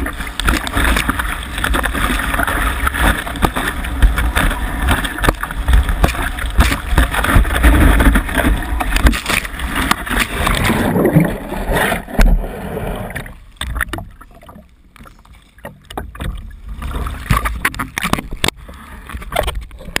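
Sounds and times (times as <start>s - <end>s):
splashes and knocks: 0.0s - 12.5s, 13.1s - 20.0s
water spray and rushing water: 0.0s - 14.5s
wind: 0.0s - 20.0s.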